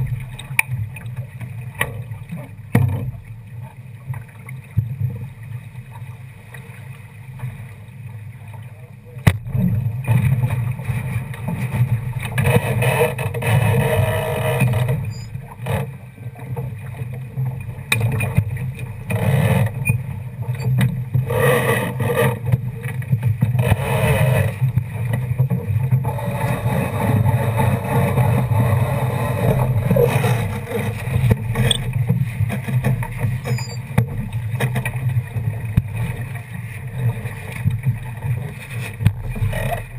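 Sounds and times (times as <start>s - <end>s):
water rushing along boat hull: 0.0s - 39.9s
wind rumble on microphone: 9.2s - 39.9s.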